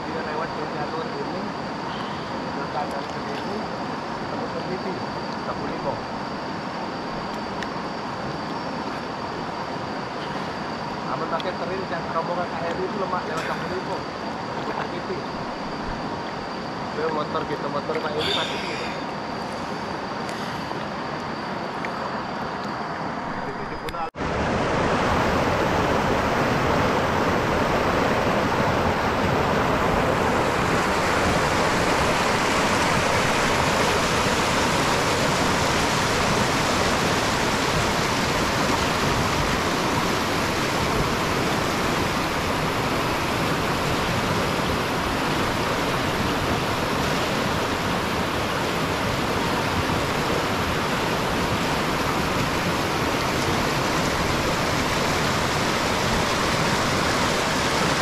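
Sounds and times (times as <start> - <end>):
water rushing over boulders: 23.2 - 58.0.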